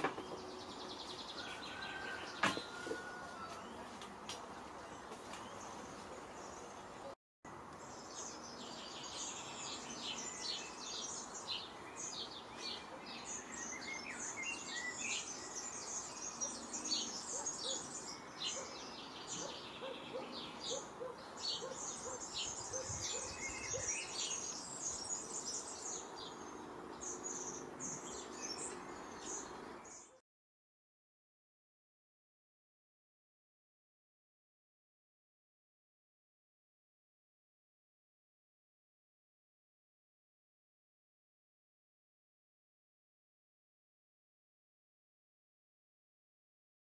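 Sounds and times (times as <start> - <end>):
songbirds chirping: 0.0 - 30.2.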